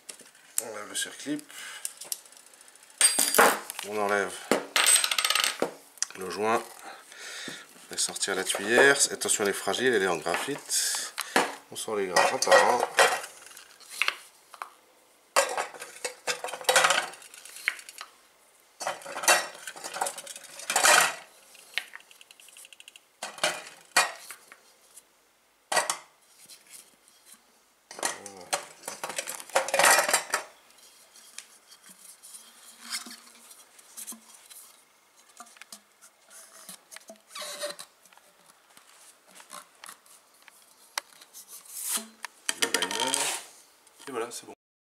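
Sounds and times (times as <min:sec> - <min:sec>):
metal pieces clattering and clinking: 0:03.0 - 0:03.6.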